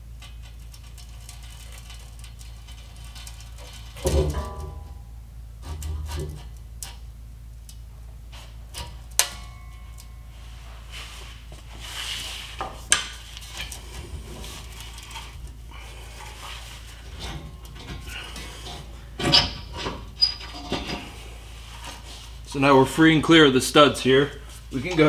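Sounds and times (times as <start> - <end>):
steady low hum: 0.0 - 25.0
metal scraping: 8.4 - 22.6.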